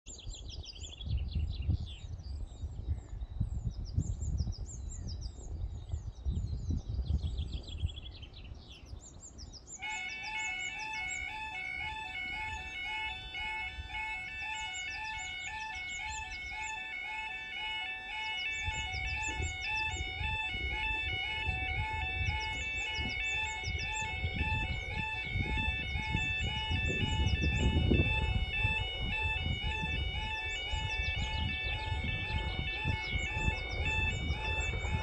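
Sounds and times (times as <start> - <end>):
low gusting rumble: 0.4 - 35.0
birds chirping: 3.9 - 35.0
level crossing electronic beeping: 9.9 - 35.0.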